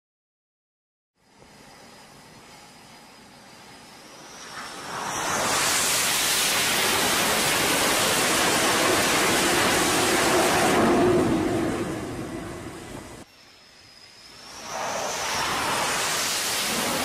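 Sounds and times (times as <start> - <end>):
low drone: 1.6 - 17.0
fighter jet engines roaring: 3.9 - 13.3, 14.1 - 17.0.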